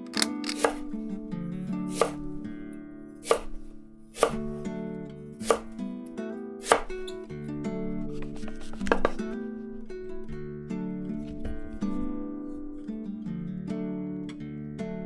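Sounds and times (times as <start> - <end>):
background music: 0.0 - 9.8
knife knocking on cutting board: 3.2 - 3.6, 4.2 - 4.4, 5.4 - 5.7, 8.4 - 9.2.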